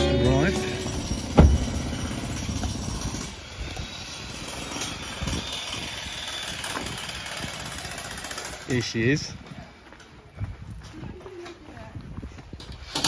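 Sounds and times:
soft low thuds: 1.2 - 2.0.

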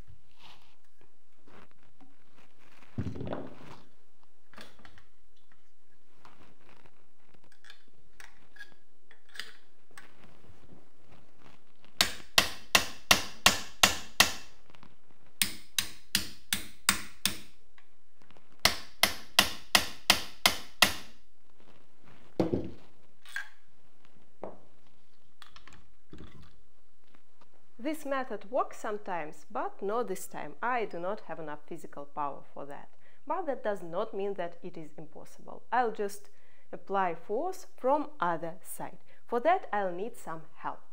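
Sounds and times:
heavy thump: 3.0 - 3.6, 22.4 - 22.8
hammer striking wooden stock: 12.0 - 14.5, 15.4 - 17.5, 18.6 - 21.2.

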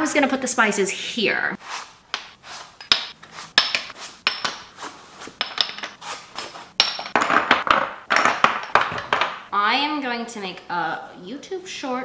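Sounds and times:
glass jars clinking and knocking: 2.8 - 4.7, 5.4 - 6.0, 6.8 - 9.5.

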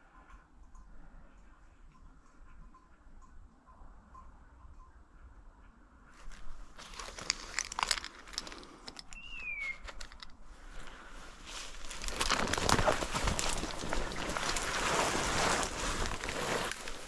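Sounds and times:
branches and leaves rustling: 6.1 - 17.0.

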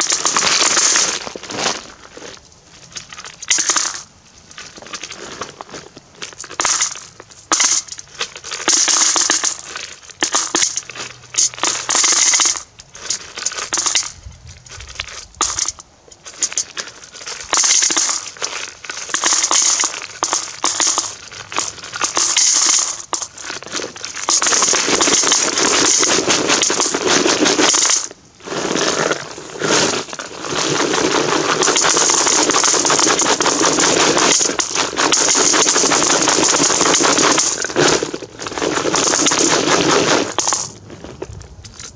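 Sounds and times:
coins pouring into metal bucket: 0.0 - 1.1, 3.4 - 4.0, 6.6 - 8.0, 8.6 - 12.7, 13.5 - 14.1, 15.2 - 15.8, 17.2 - 23.4, 24.1 - 28.1, 30.7 - 40.7.

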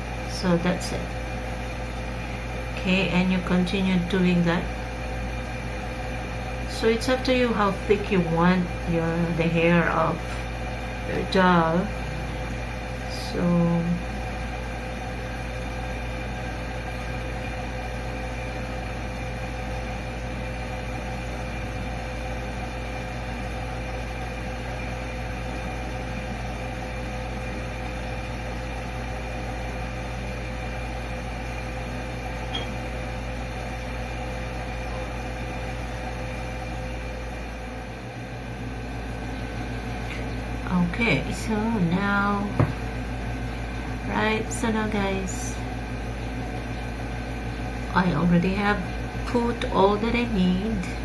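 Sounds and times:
machine hum with hiss: 0.0 - 51.0.

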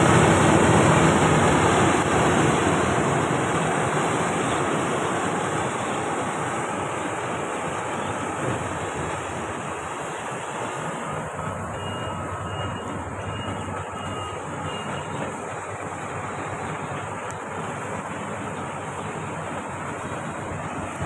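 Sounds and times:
combine harvester droning: 0.0 - 21.0
faint short beeps: 11.7 - 15.2.

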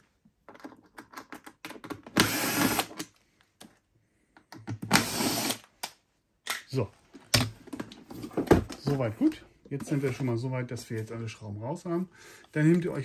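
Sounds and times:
cordless drill running: 2.2 - 3.0, 4.9 - 5.7.

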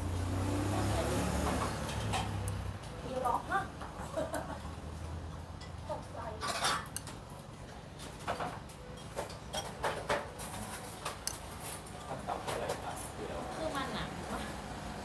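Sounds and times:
dishes and utensils clinking: 5.5 - 7.2, 8.0 - 13.2.

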